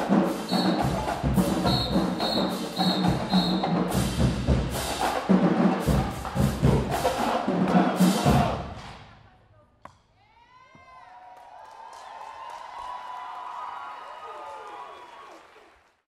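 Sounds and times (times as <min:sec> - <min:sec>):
snare and tenor drum hits: 0:00.0 - 0:09.0
bass drum: 0:03.0 - 0:09.0.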